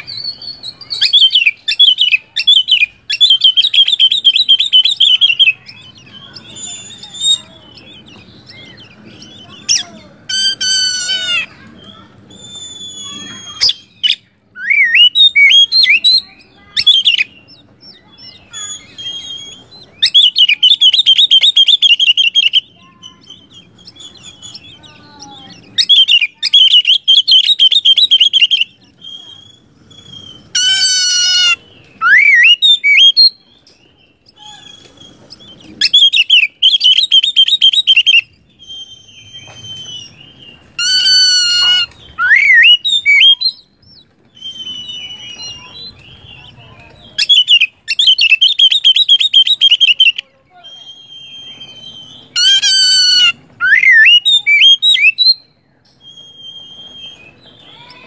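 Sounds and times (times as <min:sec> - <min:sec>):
bird singing trilled notes: 0:00.0 - 0:58.0
bird rising whistles: 0:12.3 - 0:16.2, 0:16.8 - 0:24.8, 0:25.7 - 0:33.5, 0:34.2 - 0:46.5, 0:47.2 - 0:55.4, 0:56.0 - 0:58.0.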